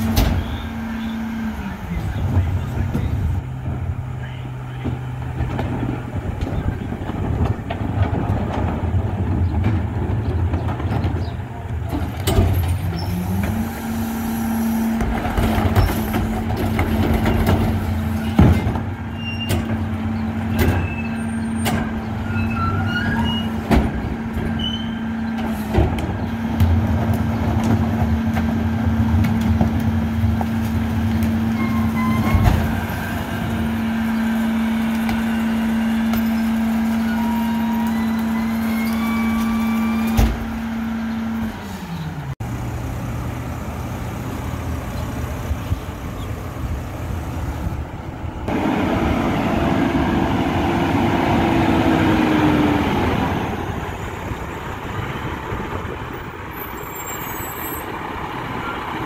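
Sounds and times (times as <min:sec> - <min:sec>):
carts knocking and banging: 0:00.0 - 0:13.9, 0:14.9 - 0:41.4
garbage truck engine running: 0:00.0 - 0:59.0.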